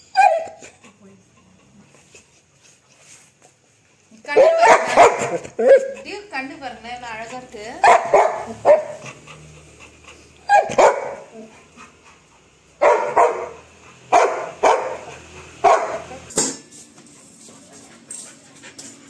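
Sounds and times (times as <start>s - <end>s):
dog barking: 0.2s - 0.6s, 4.3s - 6.0s, 7.8s - 9.0s, 10.5s - 11.4s, 12.8s - 16.3s.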